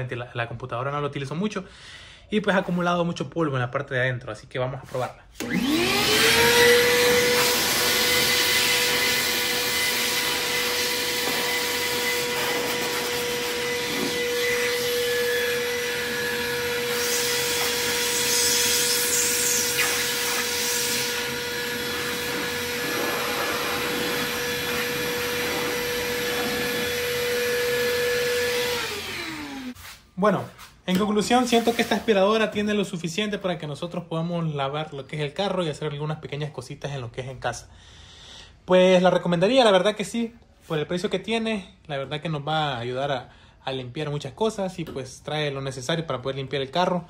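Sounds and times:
shop vacuum whining: 0:05.3 - 0:32.7
vacuum motor winding down: 0:05.4 - 0:29.8.

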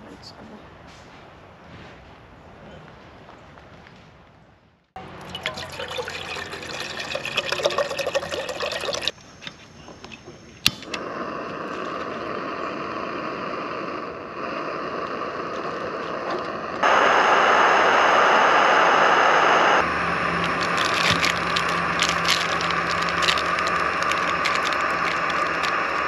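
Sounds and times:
water pouring into cup: 0:05.0 - 0:09.1, 0:19.9 - 0:26.0
gas burner hissing: 0:10.0 - 0:26.0
sharp click: 0:10.6 - 0:11.0.

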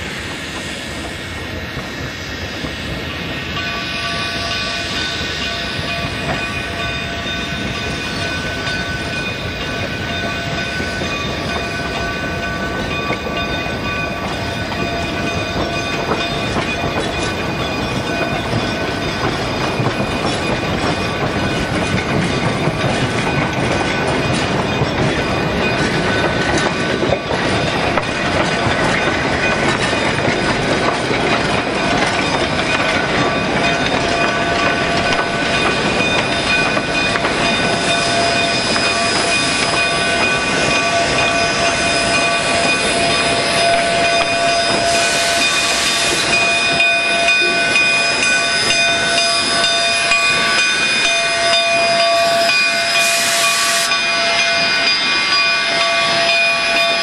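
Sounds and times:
freight cars rumbling on rails: 0:00.0 - 0:57.0
steam hiss: 0:00.0 - 0:57.0
steady squealing tones: 0:32.2 - 0:57.0.

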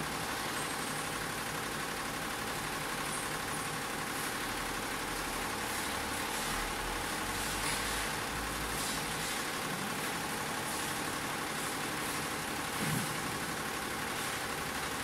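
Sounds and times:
embroidery machine running: 0:00.0 - 0:15.0.

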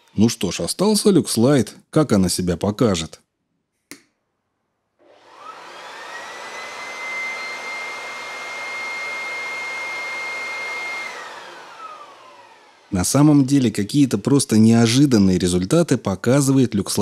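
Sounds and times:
electric leaf blower whining: 0:05.0 - 0:15.3.

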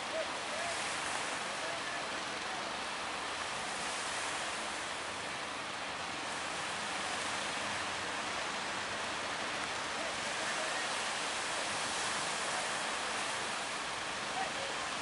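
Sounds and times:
choppy sea water: 0:00.0 - 0:15.0
waves breaking: 0:00.0 - 0:15.0.

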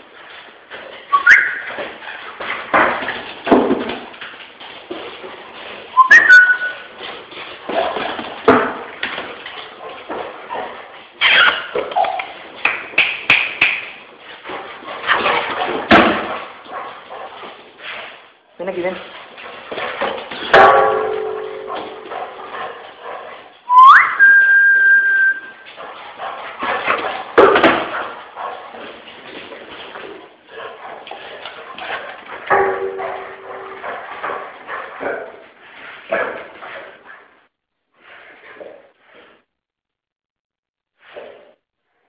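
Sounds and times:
dog paws scuffling on tiled floor: 0:00.0 - 0:39.6
high two-note whistling tone: 0:01.1 - 0:01.7, 0:06.0 - 0:06.8, 0:23.7 - 0:25.6.

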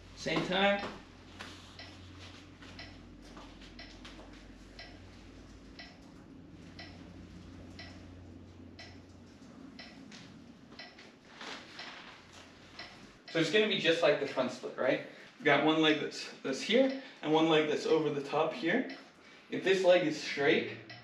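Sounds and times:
low background hum: 0:00.0 - 0:21.0
clock ticking: 0:01.8 - 0:02.0, 0:02.6 - 0:12.0, 0:12.6 - 0:13.5, 0:16.7 - 0:17.1, 0:20.8 - 0:21.0.

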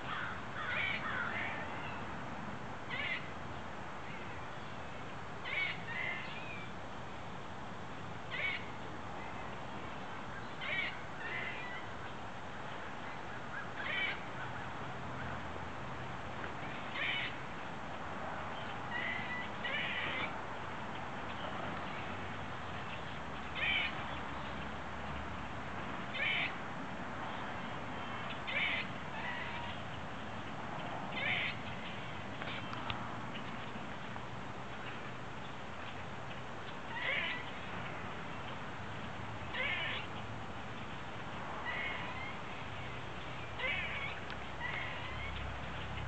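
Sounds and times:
squirrel trilling call: 0:00.0 - 0:02.0, 0:02.9 - 0:03.3, 0:05.4 - 0:06.7, 0:08.3 - 0:09.5, 0:10.4 - 0:11.9, 0:13.1 - 0:14.7, 0:16.6 - 0:17.4, 0:18.6 - 0:20.4, 0:22.8 - 0:24.6, 0:26.1 - 0:26.6, 0:27.3 - 0:30.0, 0:31.1 - 0:32.8, 0:36.7 - 0:37.7, 0:39.4 - 0:40.2, 0:41.6 - 0:45.9.

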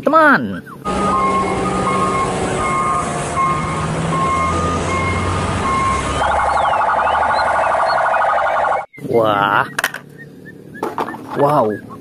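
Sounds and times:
vehicle engines rumbling: 0:00.0 - 0:12.0
police siren high-low two-tone: 0:00.8 - 0:08.9.

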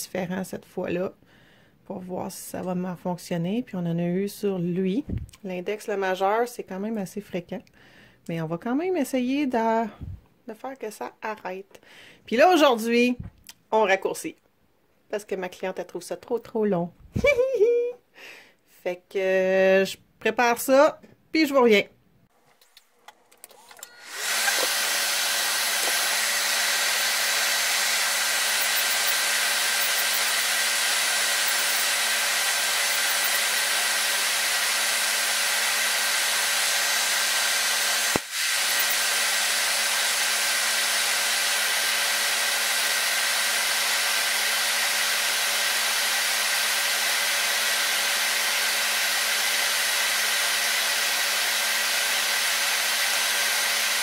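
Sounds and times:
electric nail drill filing: 0:23.8 - 0:54.0.

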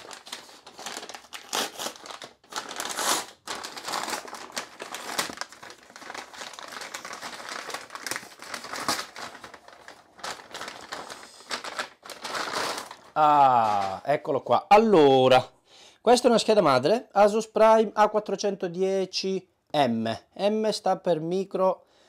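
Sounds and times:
packaging crinkling and rustling: 0:00.0 - 0:14.2.

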